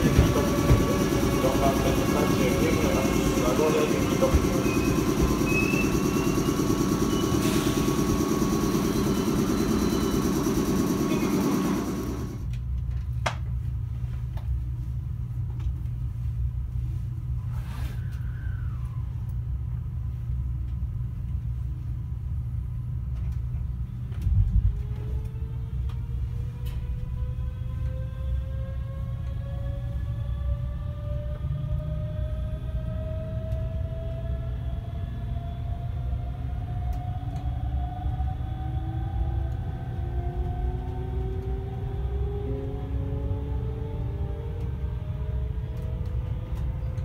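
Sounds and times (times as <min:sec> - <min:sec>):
train rumble: 0:00.0 - 0:12.5, 0:23.2 - 0:47.0
low hum inside train car: 0:00.0 - 0:47.0
train inverter whine: 0:00.0 - 0:47.0.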